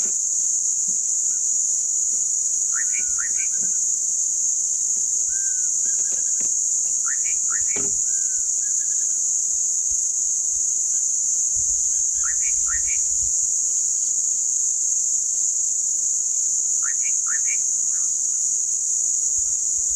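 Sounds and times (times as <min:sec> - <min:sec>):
high-pitched insect drone: 0:00.0 - 0:19.9.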